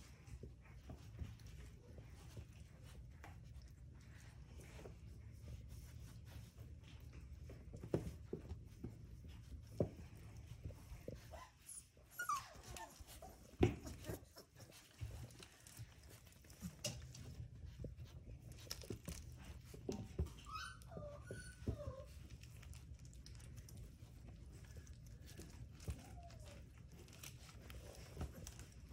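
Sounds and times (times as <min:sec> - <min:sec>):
soft bumps and scuffling: 0:00.0 - 0:28.9
puppies whining and yipping: 0:08.4 - 0:28.9.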